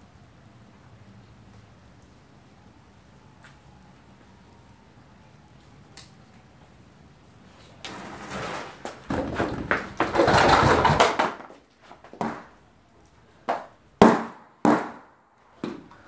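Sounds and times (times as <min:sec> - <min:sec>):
hissing crackling sparks: 0:00.0 - 0:09.1
firework bangs: 0:14.0 - 0:15.1.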